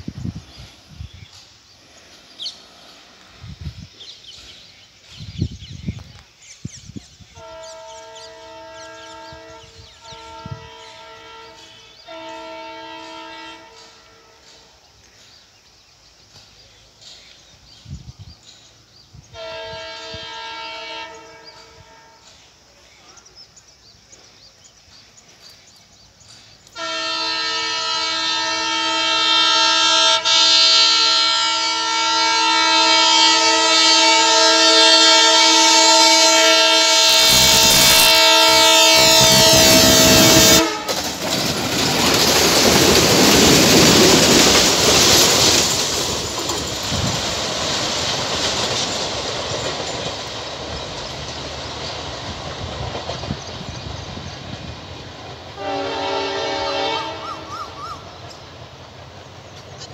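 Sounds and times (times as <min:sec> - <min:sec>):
locomotive horn chord: 0:07.3 - 0:14.7, 0:19.3 - 0:22.3, 0:26.8 - 0:41.0, 0:55.6 - 0:57.6.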